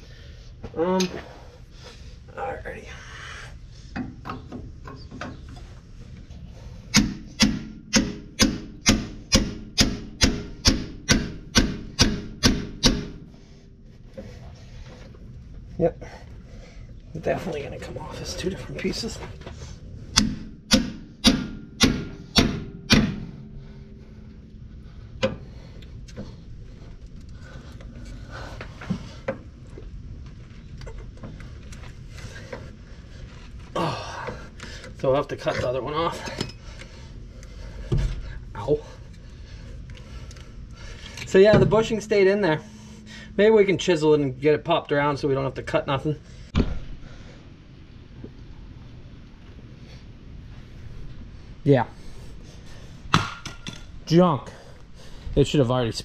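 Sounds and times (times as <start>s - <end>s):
hammer ringing metal blows: 20.2s - 24.0s, 41.4s - 44.7s.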